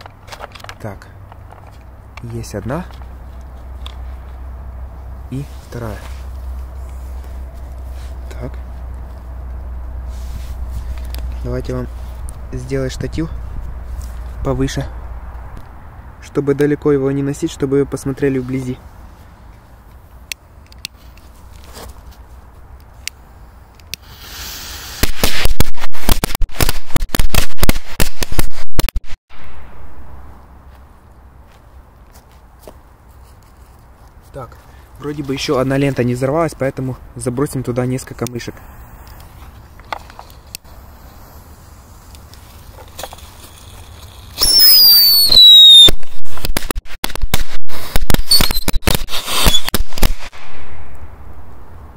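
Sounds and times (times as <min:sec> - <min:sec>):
firecracker strip bangs: 0:24.0 - 0:29.8, 0:40.6 - 0:51.2
firecracker whistle falling in pitch: 0:44.4 - 0:46.0.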